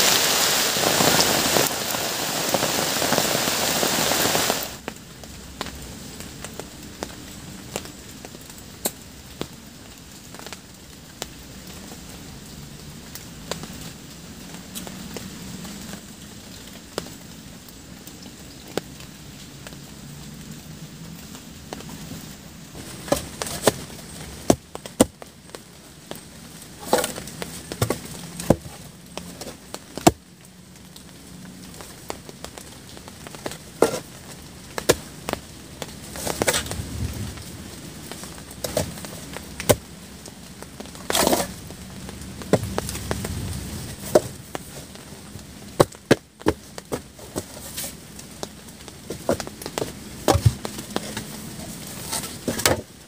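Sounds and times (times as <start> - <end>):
low background noise: 0.0 - 53.0
sharp knocks and cracks: 48.4 - 51.2.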